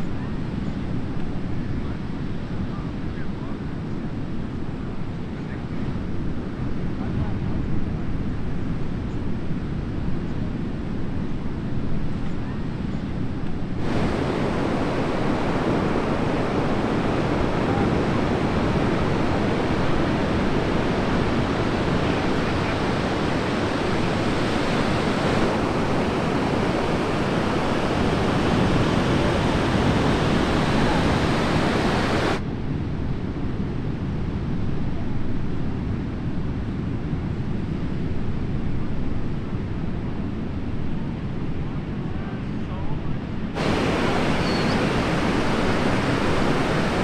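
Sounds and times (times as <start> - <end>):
wind on microphone: 0.0 - 47.0
ocean surf breaking: 13.6 - 32.4, 43.4 - 47.0.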